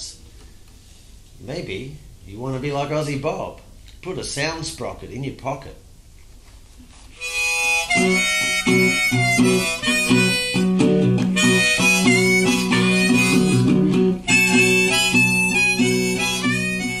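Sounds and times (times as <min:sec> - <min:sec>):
harmonica melody: 0:07.1 - 0:17.0
resonator guitar: 0:07.2 - 0:17.0.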